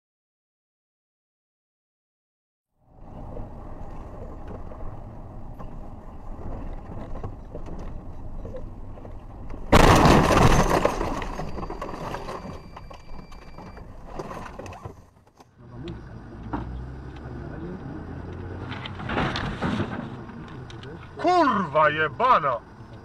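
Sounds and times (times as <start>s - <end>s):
vehicle road noise: 2.8s - 23.0s
car collision crash: 9.7s - 12.9s, 18.6s - 20.5s.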